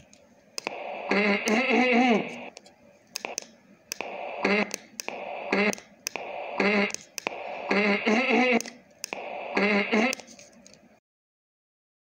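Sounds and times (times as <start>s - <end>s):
sharp clicks: 0.6s - 1.7s, 2.3s - 10.8s.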